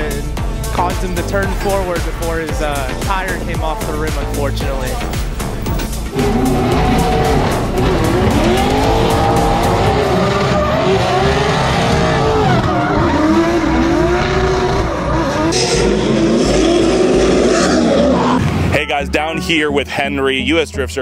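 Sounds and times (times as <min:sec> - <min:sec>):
car engine revving: 0:00.0 - 0:18.7
tires squealing: 0:05.4 - 0:18.7.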